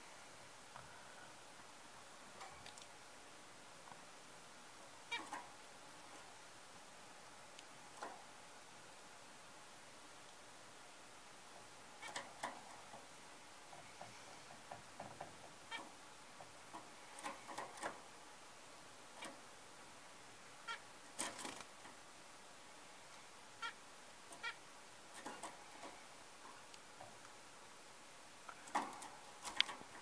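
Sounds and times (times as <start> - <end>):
soft clicks and rustles: 2.3 - 3.0, 28.4 - 30.0
finches peeping: 12.0 - 12.8, 23.5 - 26.7.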